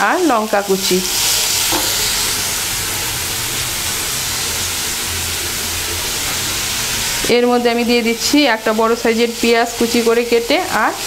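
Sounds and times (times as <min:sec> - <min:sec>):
vegetables frying in oil: 0:00.0 - 0:11.0.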